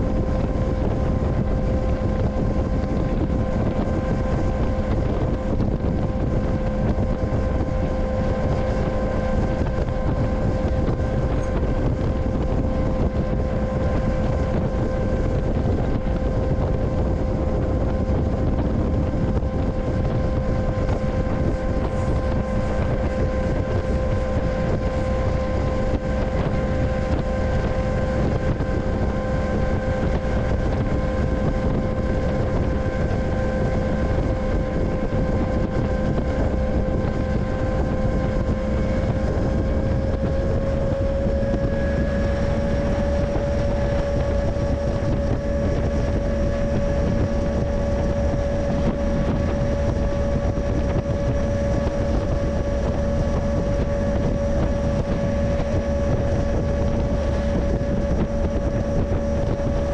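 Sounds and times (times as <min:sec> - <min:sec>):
constant whine: 0:00.0 - 0:59.9
freight train running noise: 0:00.0 - 0:59.9.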